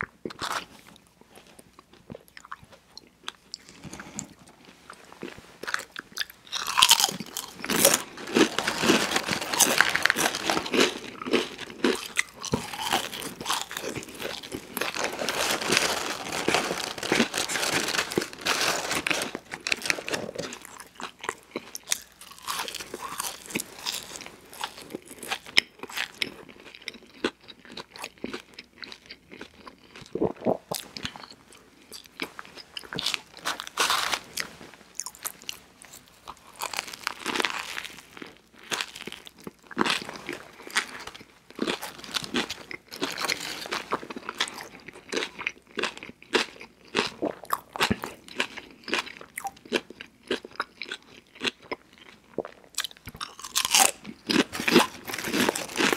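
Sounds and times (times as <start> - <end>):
person chewing crunchy food: 0.0 - 55.9.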